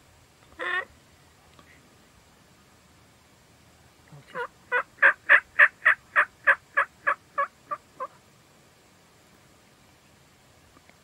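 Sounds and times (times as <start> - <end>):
turkey yelping: 4.3 - 8.2.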